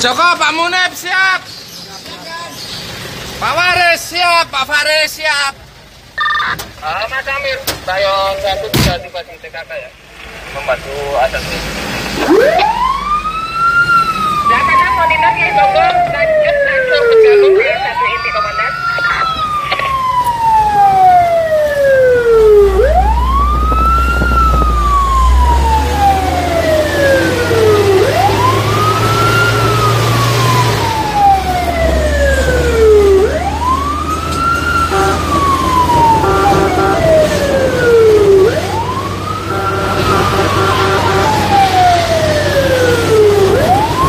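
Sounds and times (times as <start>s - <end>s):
short beeps: 6.2s - 6.6s
fire engine wail siren: 12.0s - 44.0s.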